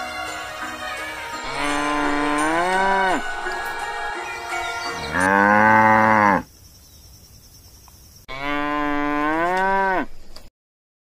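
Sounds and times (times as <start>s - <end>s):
cow mooing: 1.4s - 3.2s, 5.0s - 6.5s, 8.3s - 10.1s.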